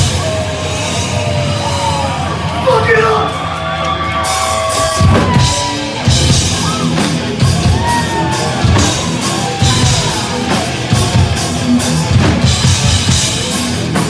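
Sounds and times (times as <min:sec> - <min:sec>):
heavy rock band playing: 0:00.0 - 0:14.0
heavy drum hits: 0:04.7 - 0:14.0.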